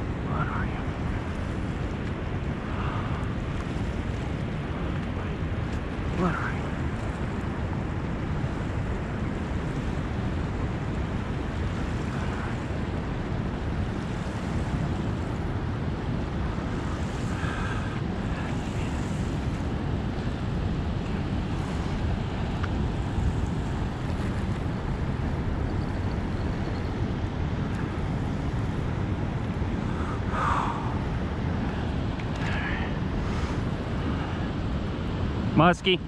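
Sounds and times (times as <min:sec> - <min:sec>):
rushing turbulent water: 0:00.0 - 0:36.0
wind buffeting microphone: 0:00.0 - 0:36.0.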